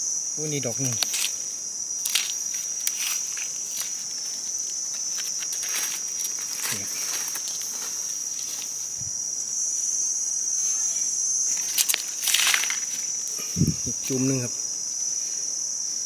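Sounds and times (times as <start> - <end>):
insects droning: 0.0 - 16.0
knife and hands rustling in soil: 0.8 - 9.9, 10.6 - 14.2.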